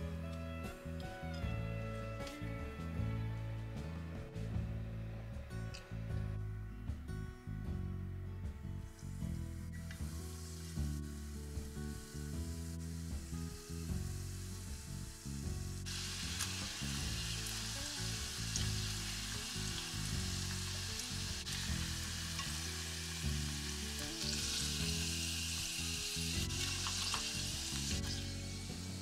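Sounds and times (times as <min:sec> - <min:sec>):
deep-frying sizzle in oil: 0:10.0 - 0:29.0.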